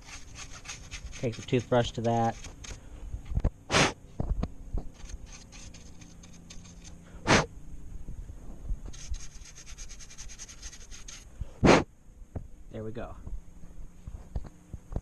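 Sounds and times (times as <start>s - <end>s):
toothbrush scrubbing plastic: 0.0s - 2.8s, 4.9s - 6.9s, 8.9s - 11.2s
loud puffs of air: 3.7s - 4.0s, 7.1s - 7.5s, 11.3s - 11.9s.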